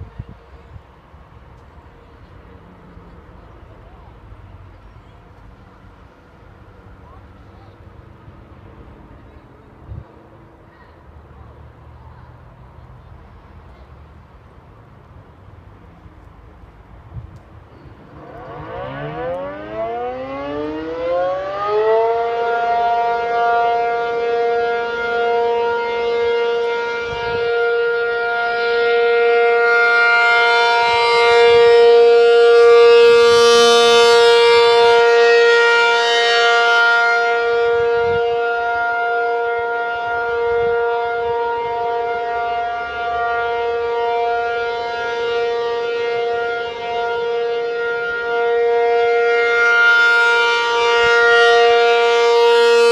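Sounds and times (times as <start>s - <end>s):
warning siren winding up: 18.1s - 23.5s, 50.6s - 52.9s.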